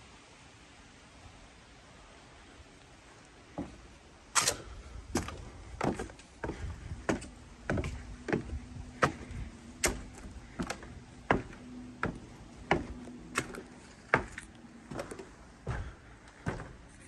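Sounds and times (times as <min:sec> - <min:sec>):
footsteps on wooden stairs: 0:03.5 - 0:17.0.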